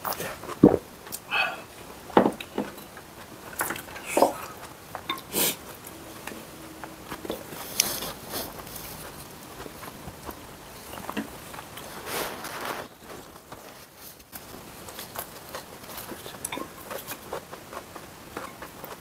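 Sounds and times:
chewing and swallowing: 0.0 - 12.0, 14.3 - 19.0.

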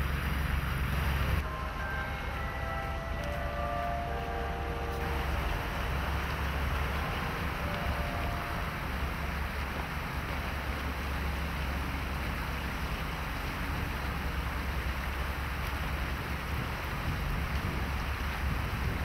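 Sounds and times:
wind buffeting microphone: 5.0 - 19.0.

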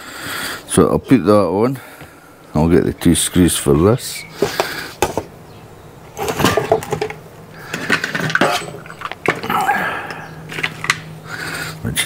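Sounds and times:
small metal parts clinking: 6.1 - 11.1.

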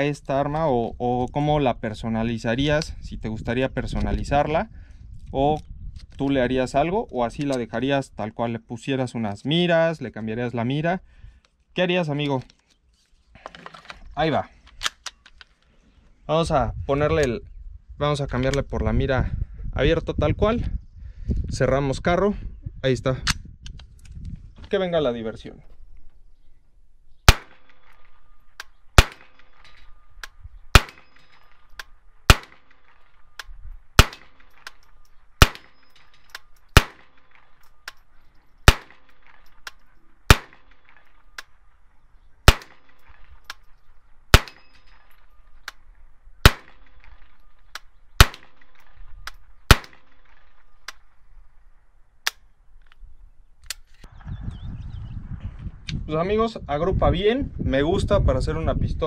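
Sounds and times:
pistol gunshots: 27.3 - 38.0, 38.6 - 41.6, 42.4 - 43.6, 44.3 - 45.4, 46.4 - 51.2.

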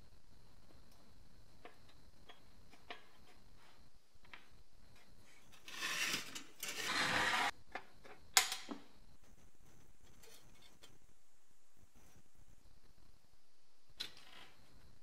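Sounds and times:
metal parts scraping and sliding: 5.5 - 7.5.

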